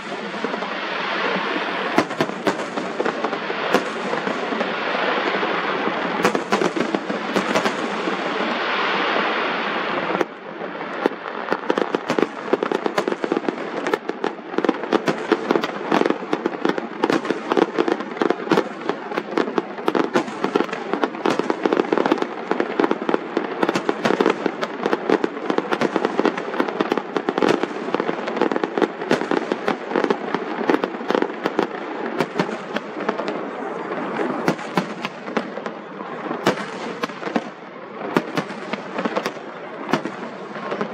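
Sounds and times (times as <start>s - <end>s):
fireworks bursting and crackling: 0.0s - 40.9s.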